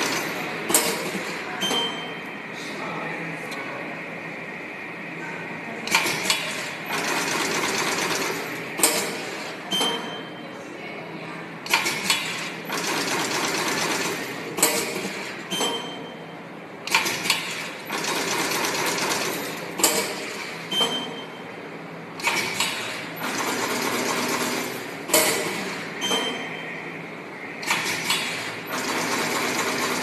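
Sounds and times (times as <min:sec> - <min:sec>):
machine mechanical run: 0:05.8 - 0:10.1, 0:11.6 - 0:16.0, 0:16.7 - 0:21.4, 0:22.0 - 0:30.0.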